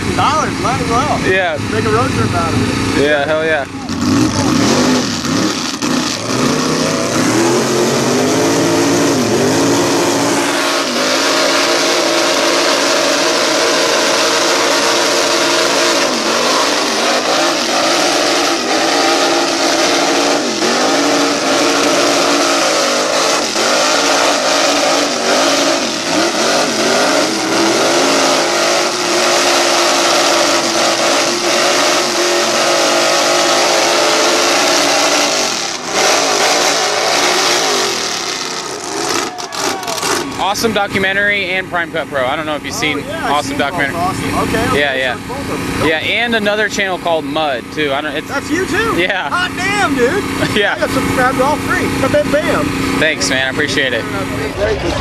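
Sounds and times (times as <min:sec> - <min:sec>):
spinning tyres hissing: 0:00.0 - 0:55.0
truck engine revving: 0:00.0 - 0:55.0.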